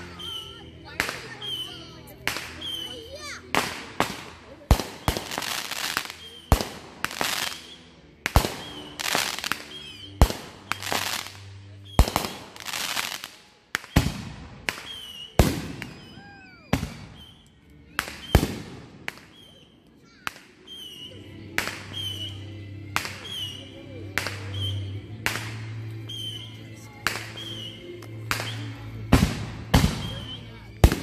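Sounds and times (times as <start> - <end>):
firework whistles: 0.0 - 3.1, 4.9 - 13.2, 13.8 - 21.2, 21.8 - 22.4, 23.0 - 23.6, 24.2 - 24.9, 26.1 - 26.6, 27.2 - 28.7, 29.8 - 30.6
fireworks bangs: 0.1 - 19.6, 28.3 - 31.0.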